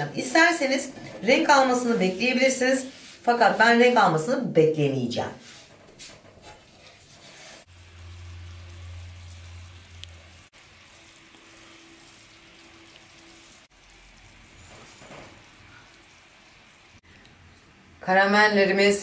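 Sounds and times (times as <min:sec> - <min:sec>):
sugar syrup sizzling in a pan: 0:06.9 - 0:17.1
low hum: 0:07.7 - 0:10.5.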